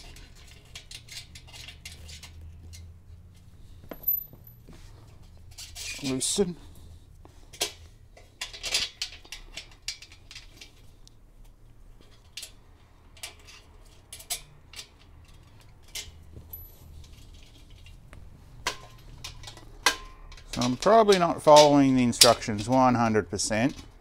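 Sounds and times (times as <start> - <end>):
metal bolts and nuts clinking: 3.6 - 6.5, 12.0 - 18.0, 18.6 - 24.0.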